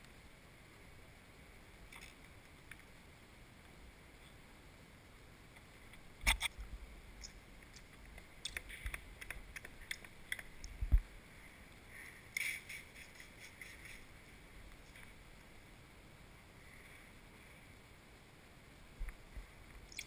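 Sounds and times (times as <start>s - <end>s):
film rustling: 12.3s - 15.2s.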